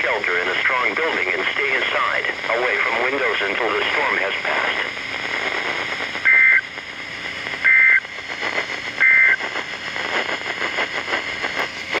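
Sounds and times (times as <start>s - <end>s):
radio static hiss: 0.0s - 12.0s
shrill warbling data squawks: 6.3s - 6.6s, 7.7s - 8.0s, 9.0s - 9.4s.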